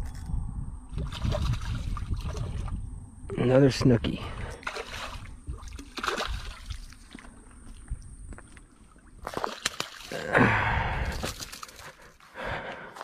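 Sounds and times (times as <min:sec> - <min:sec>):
fish splashing at surface: 0:04.5 - 0:07.2.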